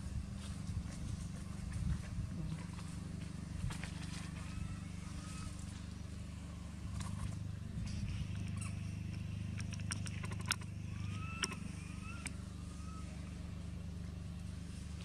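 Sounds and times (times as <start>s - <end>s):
low mechanical hum: 0.0s - 15.0s
faint whistled calls: 4.4s - 5.6s, 9.7s - 13.6s
sharp clicks: 8.3s - 12.4s.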